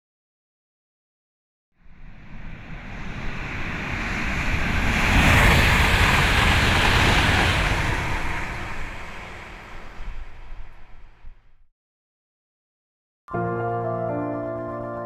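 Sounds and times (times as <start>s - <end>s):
rushing noise with deep rumble: 1.8s - 11.7s.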